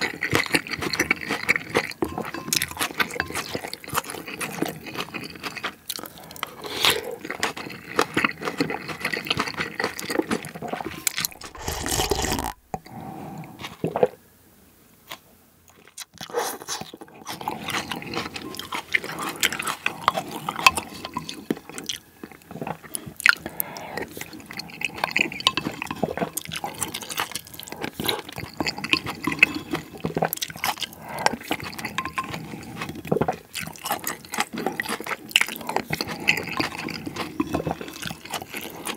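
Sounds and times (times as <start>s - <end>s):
person chewing: 0.0s - 12.8s, 15.7s - 38.9s
spoon scraping porcelain bowl: 0.2s - 5.6s, 10.7s - 12.7s, 27.8s - 30.7s, 31.3s - 33.1s
slurping of broth: 10.7s - 14.1s.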